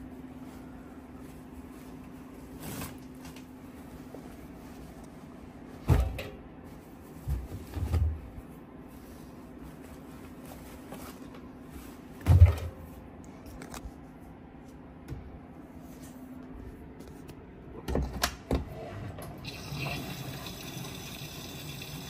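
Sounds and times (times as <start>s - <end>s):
washing machine door clunks: 5.9s - 6.4s.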